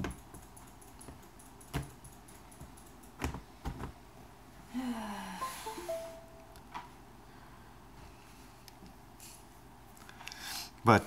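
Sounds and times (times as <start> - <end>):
short falling tone: 5.4 - 6.7.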